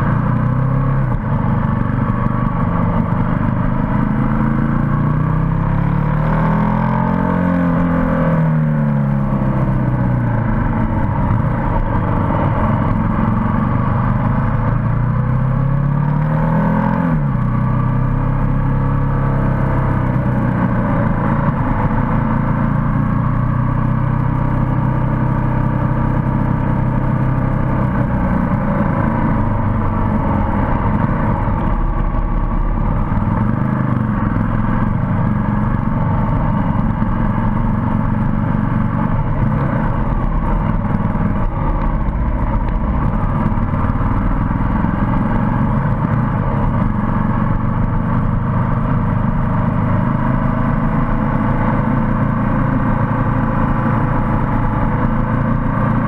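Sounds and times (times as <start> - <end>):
motorcycle engine cruising: 0.0 - 56.0
wind noise rumbling: 9.4 - 15.3, 27.9 - 48.6.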